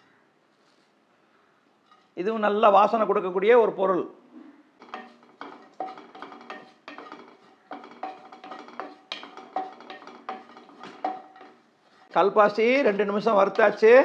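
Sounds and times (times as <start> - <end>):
wooden spatula scraping a pan: 4.8 - 12.2, 13.0 - 14.0.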